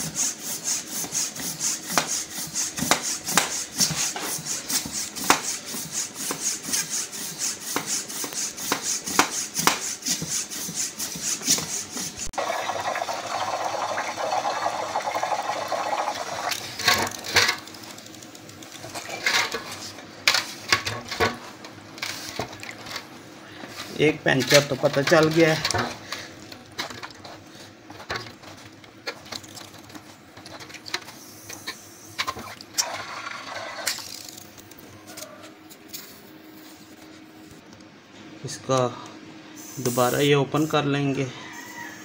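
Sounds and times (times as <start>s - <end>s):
hand pump strokes: 0.0s - 12.3s.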